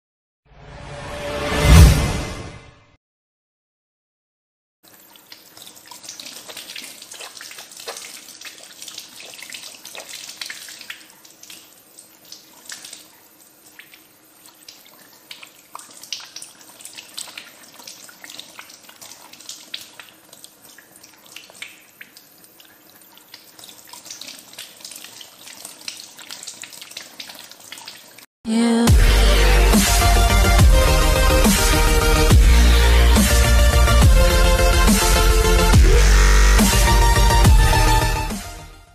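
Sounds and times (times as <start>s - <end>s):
tap water splashing over hands: 4.9s - 11.7s.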